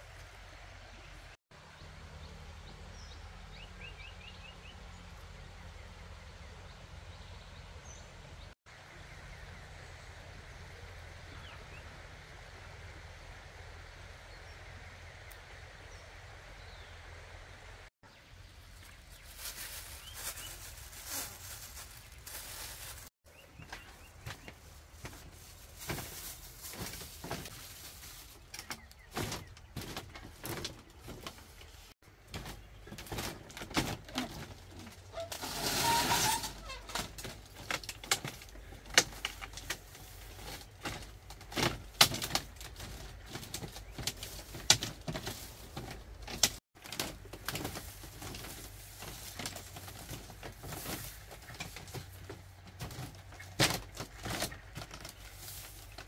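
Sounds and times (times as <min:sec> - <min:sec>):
bamboo floor creaking and knocking: 0:28.4 - 0:56.0.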